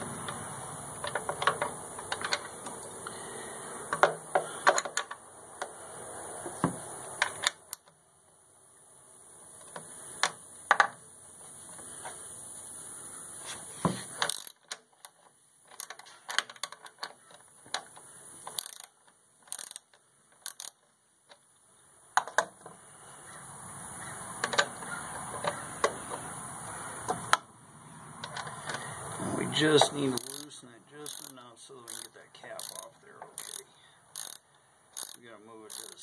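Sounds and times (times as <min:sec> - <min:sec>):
ratchet clicks and metal taps: 0:01.0 - 0:03.2, 0:03.9 - 0:05.7, 0:06.5 - 0:08.0, 0:09.6 - 0:11.0, 0:13.9 - 0:21.5, 0:22.2 - 0:22.8, 0:24.4 - 0:26.2, 0:28.2 - 0:28.9, 0:29.7 - 0:36.0
soft rushing noise: 0:26.0 - 0:31.0.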